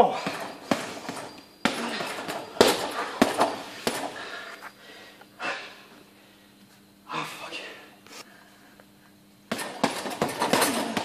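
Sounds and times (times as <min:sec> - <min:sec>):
punches on heavy bag: 0:00.0 - 0:04.2, 0:09.5 - 0:11.0.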